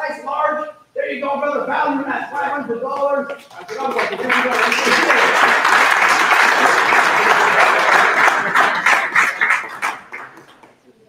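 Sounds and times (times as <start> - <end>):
audience applauding: 3.4 - 10.8.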